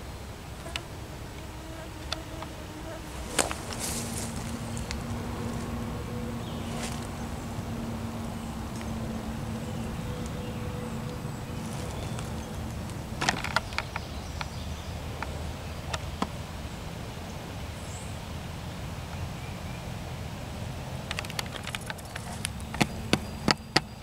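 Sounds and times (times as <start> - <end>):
steady low rumble: 0.0 - 15.9
faint hum: 0.0 - 24.0.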